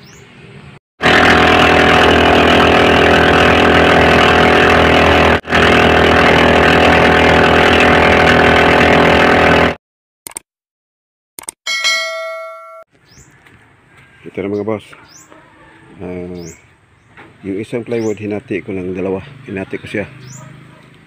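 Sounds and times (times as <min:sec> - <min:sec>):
intro soundtrack with engine drone: 0:01.0 - 0:09.8.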